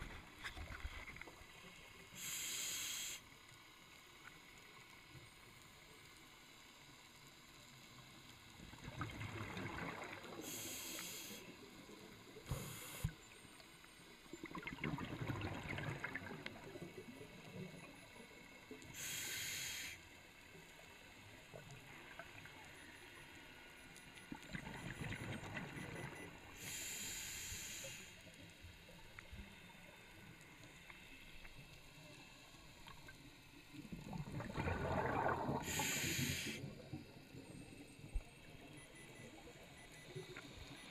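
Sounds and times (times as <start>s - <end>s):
regulator hissing inhalations: 2.1s - 3.3s, 10.4s - 11.5s, 12.5s - 13.2s, 18.9s - 20.0s, 26.6s - 28.2s, 35.6s - 36.7s
exhaled bubbles rushing underwater: 8.7s - 10.6s, 14.4s - 17.9s, 24.3s - 26.4s, 33.8s - 37.2s.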